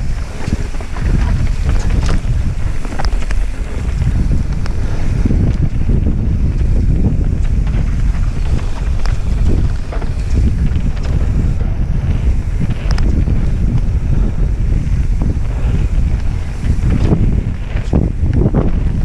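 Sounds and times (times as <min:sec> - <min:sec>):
bike clicks and rattles: 0:00.0 - 0:19.0
tyres rolling over dirt and stones: 0:00.0 - 0:19.0
wind buffeting microphone: 0:00.0 - 0:19.0.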